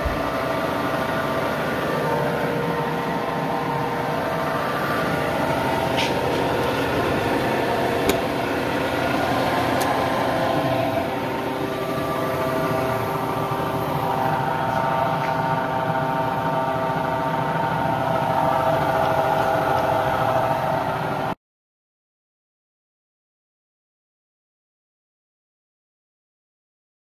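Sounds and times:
disc sander humming: 0:00.0 - 0:21.3.

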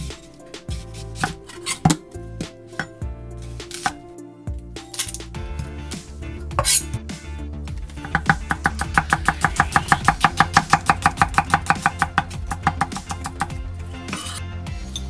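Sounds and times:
background music: 0:00.0 - 0:15.0
knife tapping on cutting board: 0:08.1 - 0:13.5.

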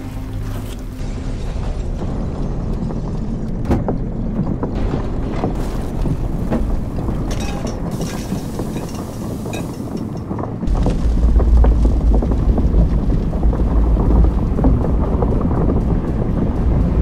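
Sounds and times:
deep steady rumble: 0:00.0 - 0:17.0
debris knocks and clanks: 0:01.0 - 0:13.2
rushing wind-like hiss: 0:07.5 - 0:11.8.

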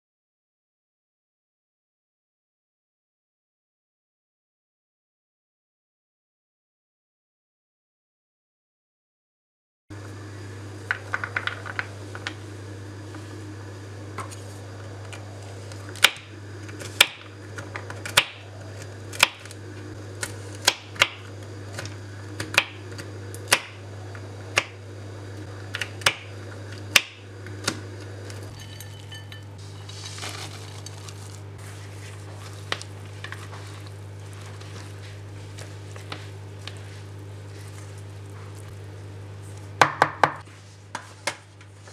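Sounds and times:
steady low hum: 0:09.9 - 0:41.9.

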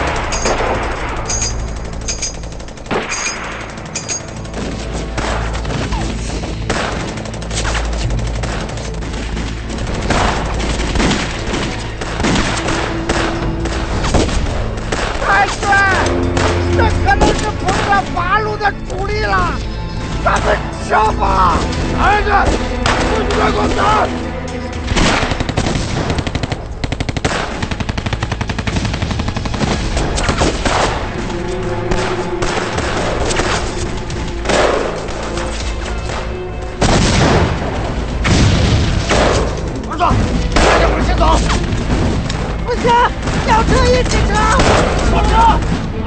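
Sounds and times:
machine gun firing bursts: 0:00.0 - 0:15.4, 0:24.8 - 0:35.6
rifle shots: 0:00.0 - 0:18.0, 0:24.8 - 0:31.2, 0:31.9 - 0:45.9
gunfire: 0:00.0 - 0:18.1, 0:21.6 - 0:24.1, 0:24.8 - 0:46.0
background music: 0:00.0 - 0:46.0.

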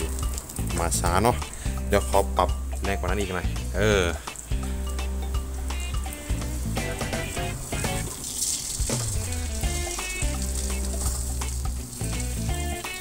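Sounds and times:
background music: 0:00.0 - 0:13.0
omelette sizzling in oil: 0:04.2 - 0:13.0.

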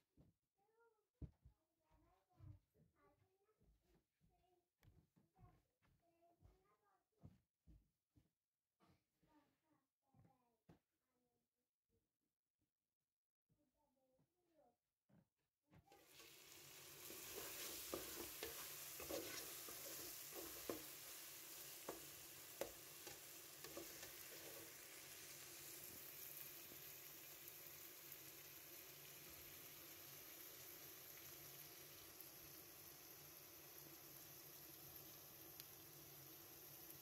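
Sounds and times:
vegetables sizzling in oil: 0:15.9 - 0:37.0
metal spoon scraping a pot: 0:17.0 - 0:21.0.

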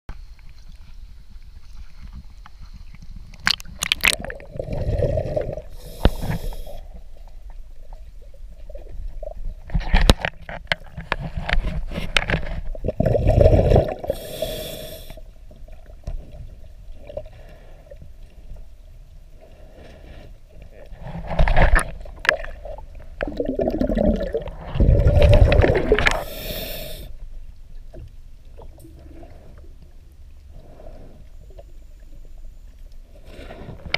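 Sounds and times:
muffled water noise: 0:00.1 - 0:33.9
scuba regulator bubbling: 0:03.4 - 0:07.0, 0:12.7 - 0:15.9, 0:21.3 - 0:27.2.

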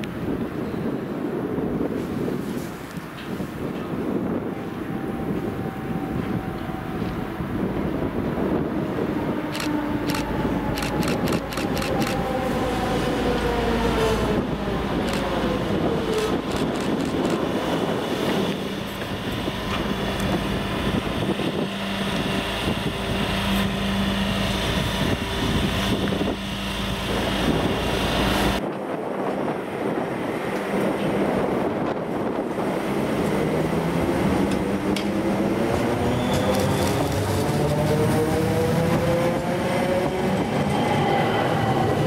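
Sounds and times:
train motors whining: 0:09.5 - 0:28.6.

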